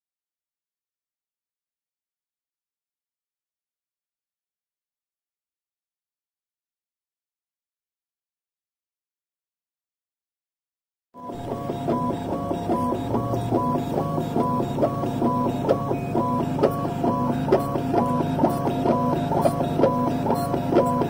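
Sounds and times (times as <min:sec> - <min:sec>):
milling machine grinding: 0:11.2 - 0:21.0.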